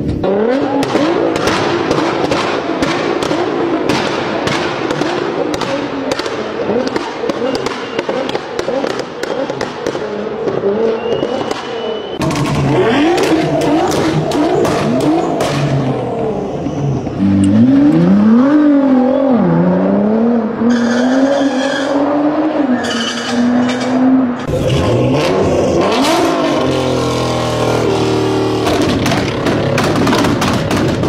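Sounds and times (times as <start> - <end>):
exhaust pops and crackles: 0.0 - 16.0, 26.2 - 31.0
car engine revving: 0.0 - 31.0
crowd voices: 3.5 - 27.2.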